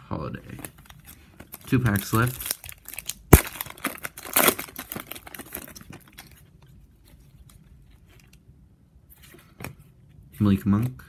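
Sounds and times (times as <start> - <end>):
cards rustling: 0.4 - 8.4
foil wrapper crinkling: 0.8 - 6.5.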